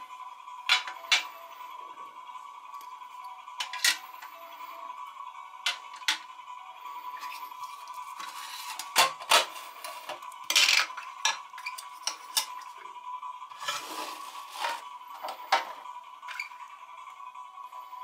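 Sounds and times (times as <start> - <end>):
faint steady high tone: 0.7 - 5.5.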